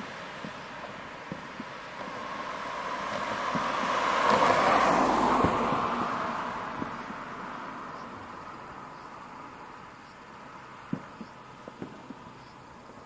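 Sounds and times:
distant fireworks rushing noise: 0.0s - 13.0s
faint firework shell thuds: 10.9s - 12.3s.

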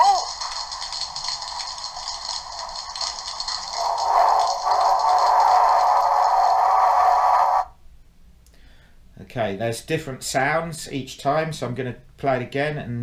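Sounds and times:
rushing water effect: 0.0s - 7.7s.

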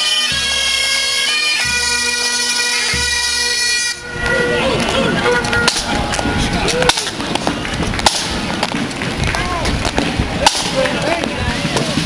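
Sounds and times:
people talking: 4.1s - 12.0s.

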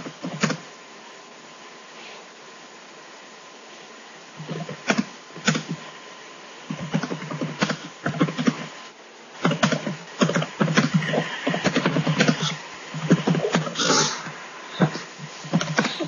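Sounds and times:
quick irregular clicks and taps: 4.4s - 5.8s, 6.7s - 8.7s, 9.4s - 11.0s.

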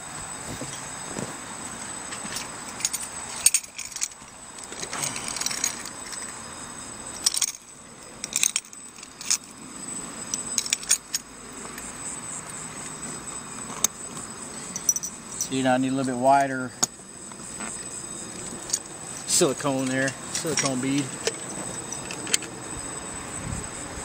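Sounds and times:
metallic clinks of bolts: 2.1s - 6.4s, 7.1s - 9.6s, 10.3s - 11.9s, 12.8s - 22.7s.

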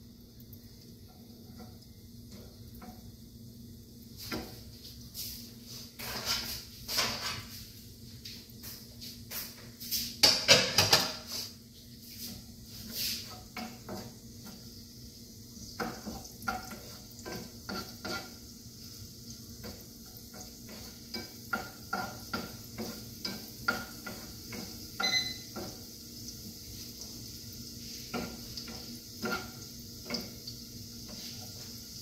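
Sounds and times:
faint oil sizzle: 0.0s - 32.0s
wooden spatula scraping a pan: 4.2s - 7.8s, 10.9s - 14.8s, 15.7s - 25.0s, 27.8s - 32.0s.

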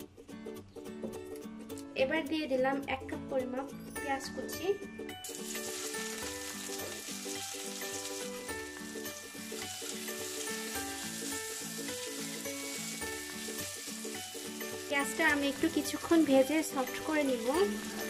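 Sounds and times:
background music: 0.0s - 18.0s
onions sizzling in hot oil: 5.2s - 18.0s.

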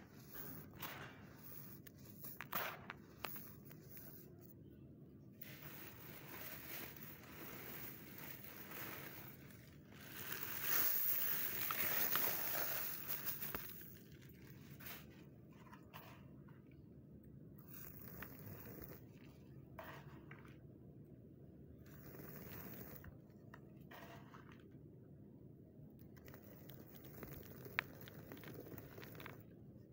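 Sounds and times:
sand crunching by hand: 5.5s - 13.9s.

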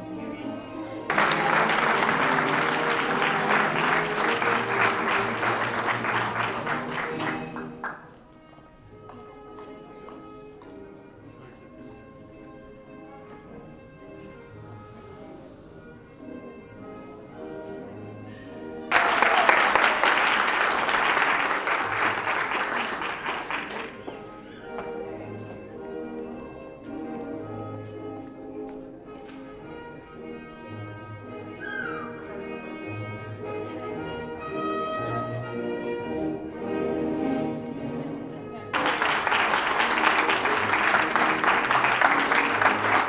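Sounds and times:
orchestral music: 0.0s - 8.3s, 38.8s - 43.0s
background music: 0.0s - 43.0s
audience applauding: 1.1s - 8.1s, 18.9s - 24.2s, 38.8s - 43.0s.

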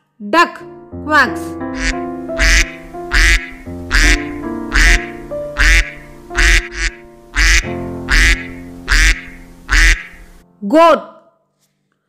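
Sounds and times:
background music with sustained notes: 0.5s - 11.0s
duck quacking: 1.8s - 10.4s.

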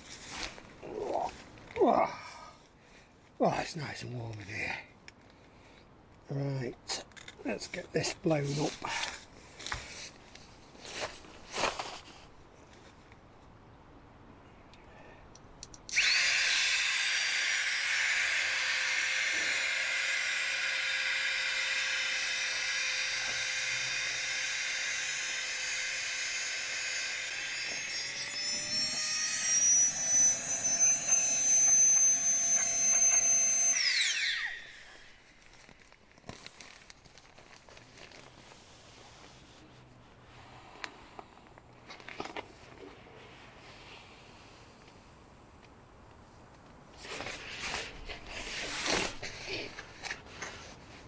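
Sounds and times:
rustling of mat being handled: 8.5s - 13.0s
mini air pump whining: 15.9s - 35.7s.

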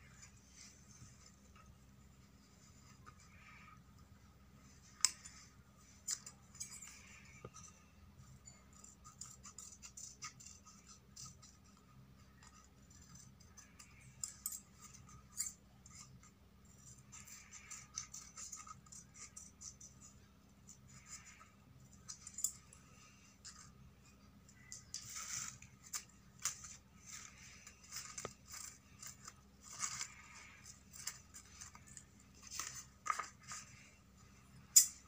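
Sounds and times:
scissors snipping paper: 8.4s - 20.0s, 24.6s - 33.9s
paper rustling: 24.7s - 34.3s.

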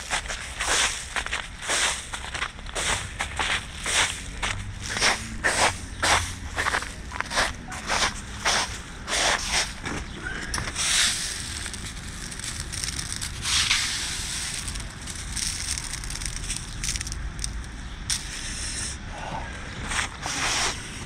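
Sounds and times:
steady low rumble: 0.0s - 21.0s
hailstones crunching: 9.3s - 17.8s.

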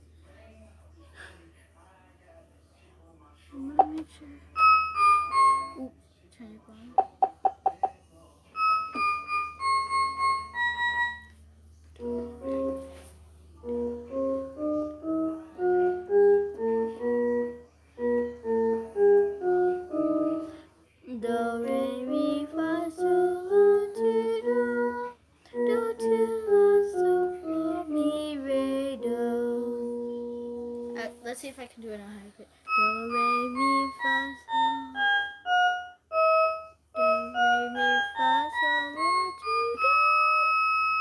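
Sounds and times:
toy electronic keyboard playing: 4.6s - 5.9s, 8.5s - 11.4s, 32.7s - 41.0s.

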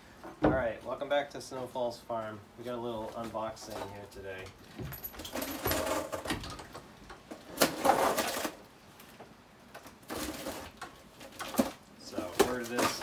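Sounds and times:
cardboard tearing and rustling: 7.4s - 8.7s, 9.8s - 13.0s.

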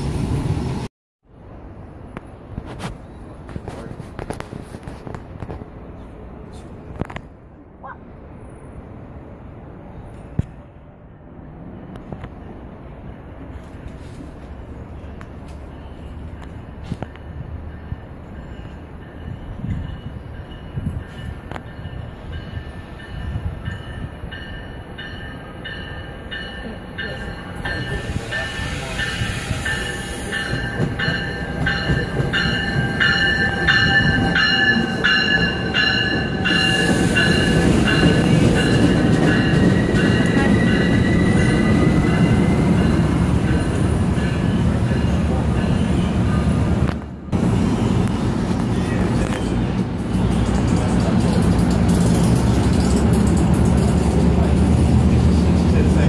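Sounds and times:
low rumble of train wheels: 0.0s - 56.0s
train bell ringing: 15.6s - 46.4s
thin squeal of braking train: 27.0s - 44.7s.

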